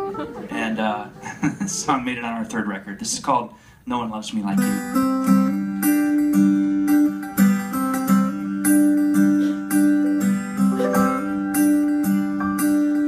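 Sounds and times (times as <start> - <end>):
live rock band playing: 0.0 - 0.5, 4.7 - 13.0
electric guitar notes: 4.6 - 13.0.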